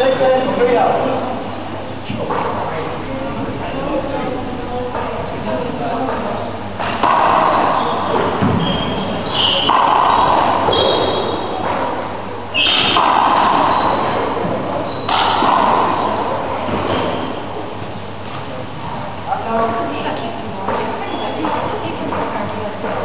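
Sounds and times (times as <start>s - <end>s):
trainers squeaking on floor: 7.2s - 11.6s, 12.5s - 15.2s, 21.0s - 21.6s
rubber ball hitting walls and floor: 15.1s - 17.0s.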